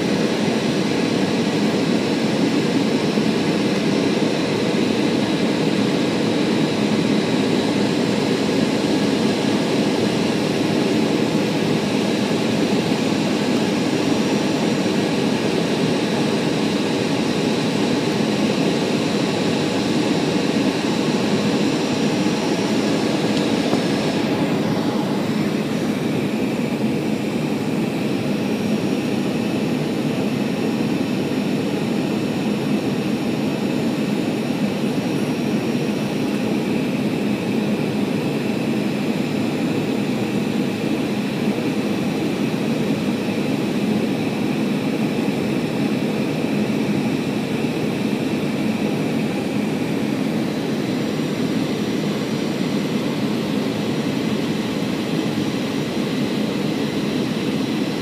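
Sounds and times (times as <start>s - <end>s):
jet engine drone: 0.0s - 58.0s
rushing airflow: 19.2s - 33.5s.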